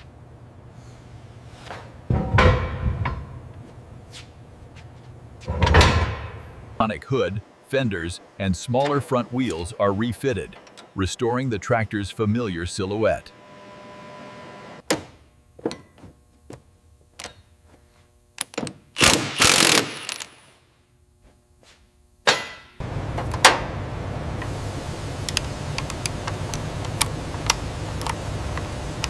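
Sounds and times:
steady low noise: 0:05.2 - 0:13.3.

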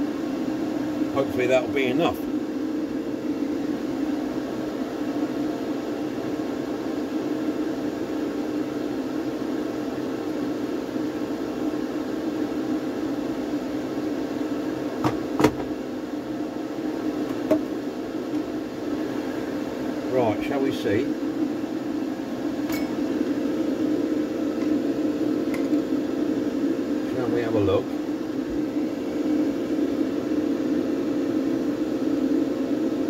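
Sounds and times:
extraction fan humming: 0:00.0 - 0:33.0.

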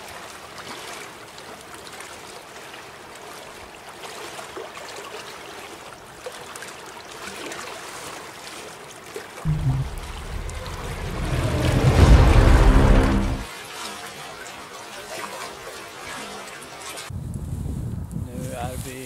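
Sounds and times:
lake water lapping: 0:00.0 - 0:17.1
background music: 0:09.5 - 0:13.5.

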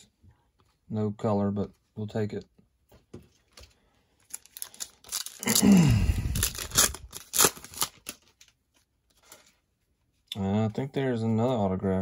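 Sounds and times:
foil wrapper tearing and crinkling: 0:04.2 - 0:08.5.

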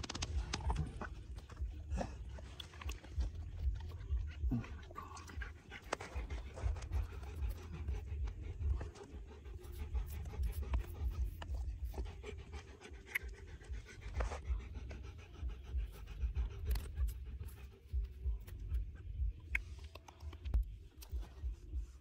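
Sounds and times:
dog panting: 0:00.0 - 0:22.0.

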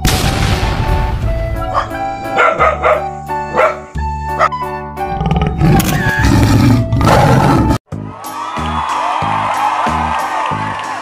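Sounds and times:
cartoon background music: 0:00.4 - 0:11.0
loud animal roar: 0:05.2 - 0:07.8.

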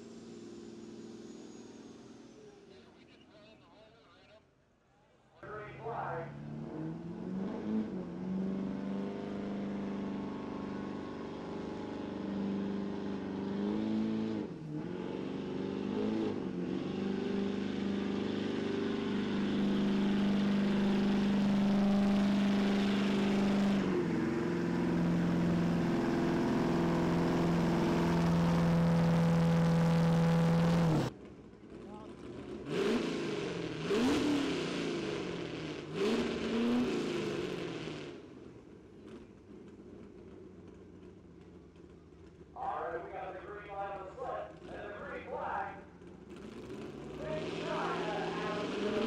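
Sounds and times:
truck engine at high revs: 0:05.4 - 0:40.4, 0:42.6 - 0:49.0.

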